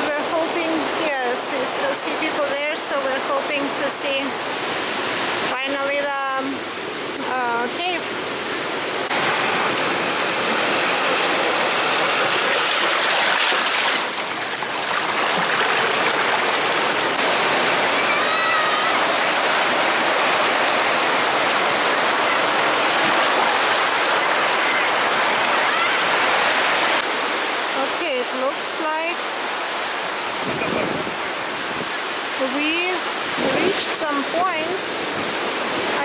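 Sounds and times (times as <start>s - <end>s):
seawater rushing over rocks: 7.8s - 27.9s.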